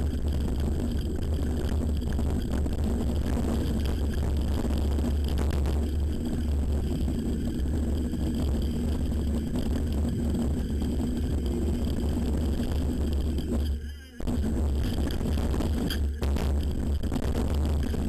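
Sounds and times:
wind on microphone: 0.0 - 18.0.

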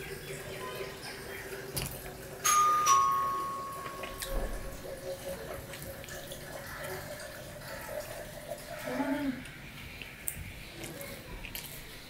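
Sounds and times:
soft wet eating sounds: 0.0 - 2.5, 3.2 - 12.0
steel plate clinking and ringing: 2.4 - 5.1.

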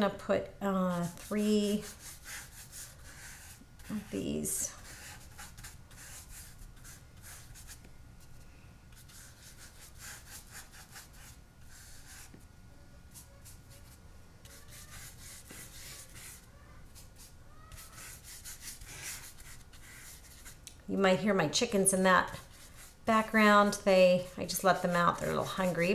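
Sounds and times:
paintbrush swishing on paper: 13.1 - 20.6, 22.3 - 25.9.

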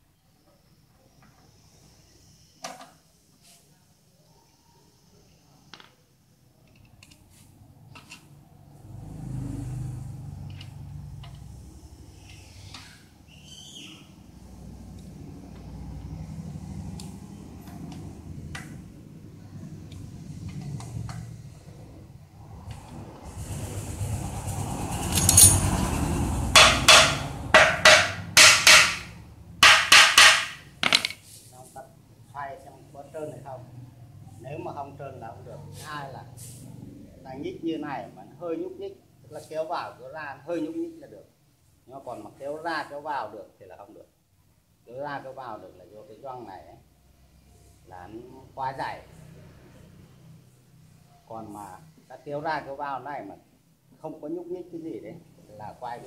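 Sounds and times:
low engine hum: 14.5 - 27.6
tools rustling: 25.0 - 25.8, 26.6 - 31.5
wrench clinking on metal: 25.1 - 25.7
hammer striking metal: 26.5 - 31.1.

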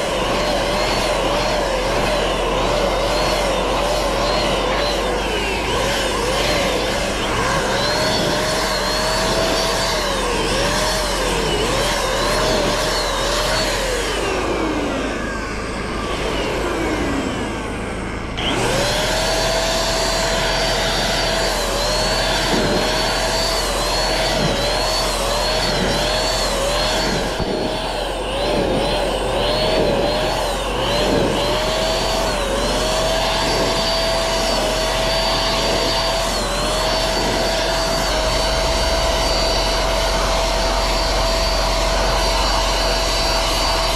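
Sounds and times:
electric paint sprayer whining: 0.0 - 43.9.

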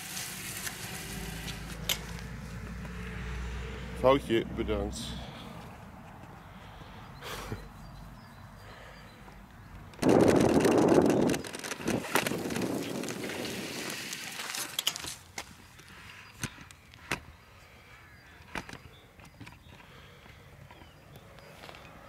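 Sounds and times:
kick scooter wheels rolling: 9.9 - 17.3.

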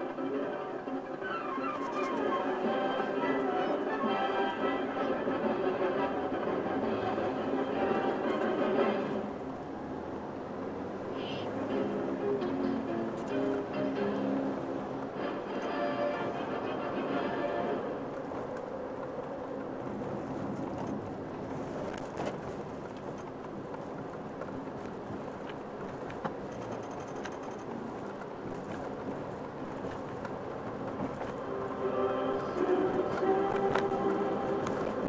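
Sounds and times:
music: 0.0 - 9.3, 11.5 - 18.1, 31.3 - 35.0
engine and road rumble: 0.0 - 35.0.

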